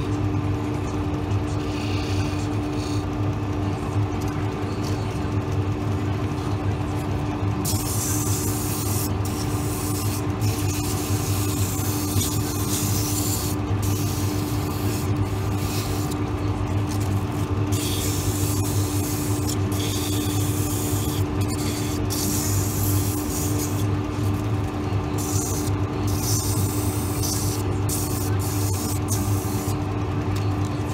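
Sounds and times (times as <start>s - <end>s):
lathe motor humming: 0.0s - 30.9s
sandpaper hissing on wood: 7.7s - 16.2s, 17.7s - 23.9s, 25.2s - 29.8s.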